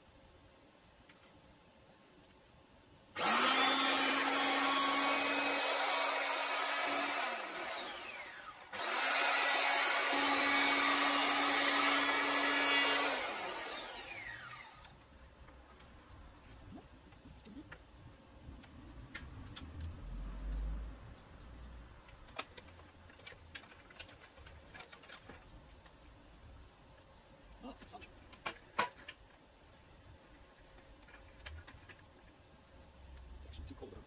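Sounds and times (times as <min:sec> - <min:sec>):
electric hand planer planing wood: 0:03.2 - 0:14.8.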